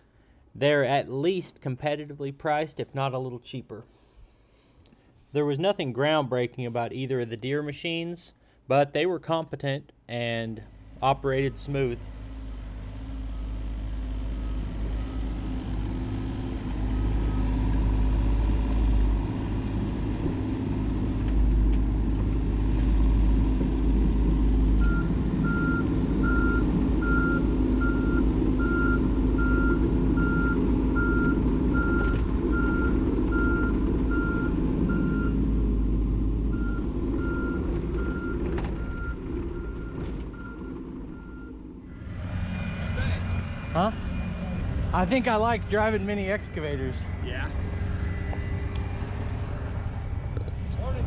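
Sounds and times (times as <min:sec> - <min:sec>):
excavator diesel engine running: 0:10.7 - 0:51.0
travel alarm beeping: 0:24.8 - 0:35.4.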